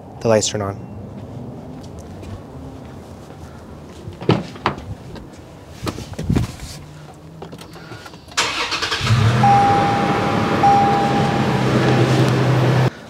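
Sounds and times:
car engine starting and idling: 0:07.4 - 0:12.9
thin high tone: 0:09.3 - 0:12.8.

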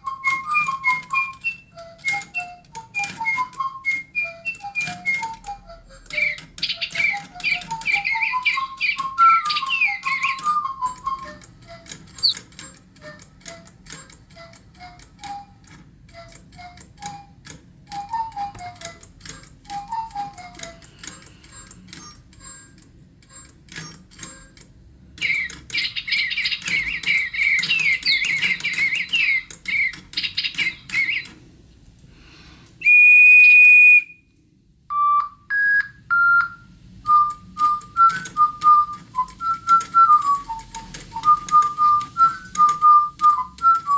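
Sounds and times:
whistled tune notes: 0:00.0 - 0:12.4, 0:14.4 - 0:21.0, 0:25.2 - 0:31.3, 0:32.8 - 0:34.3, 0:34.9 - 0:43.9
rapid clicking: 0:00.1 - 0:31.5, 0:37.1 - 0:43.9
electronic bird tweets and chirps: 0:06.1 - 0:11.5, 0:12.2 - 0:12.4, 0:21.9 - 0:22.3, 0:25.2 - 0:31.3.

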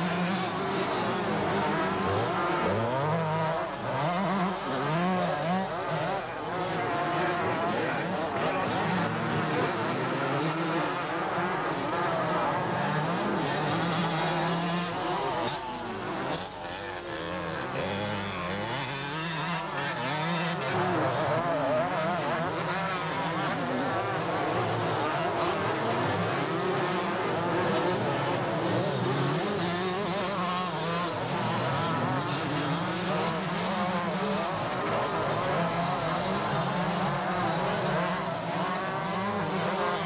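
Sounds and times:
motocross bikes revving: 0:00.0 - 0:40.0.

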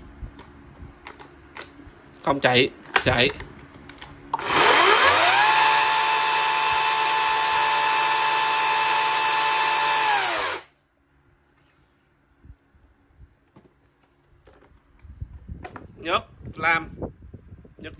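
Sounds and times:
cordless chainsaw whining: 0:04.4 - 0:10.7.

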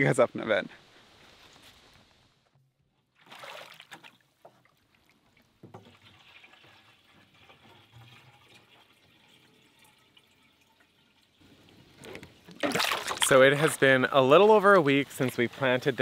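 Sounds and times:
water splash: 0:03.2 - 0:04.3, 0:12.4 - 0:14.2
water trickling with drips: 0:03.2 - 0:16.0.

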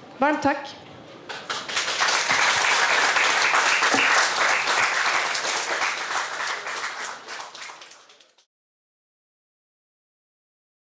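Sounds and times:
audience applauding: 0:01.3 - 0:08.5.

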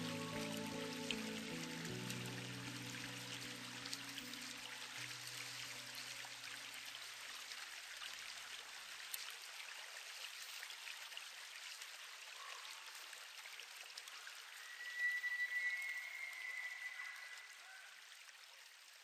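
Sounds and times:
low music notes: 0:00.0 - 0:05.3
running water: 0:00.0 - 0:19.0.

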